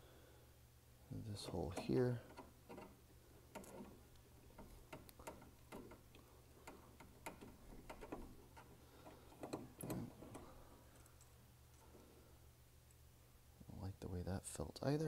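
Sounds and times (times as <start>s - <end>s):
screwdriver clicking on metal: 1.6s - 10.6s.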